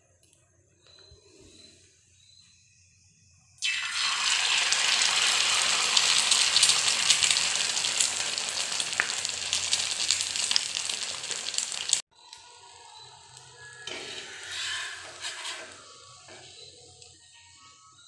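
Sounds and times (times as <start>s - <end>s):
egg sizzling in hot oil: 3.6s - 12.1s.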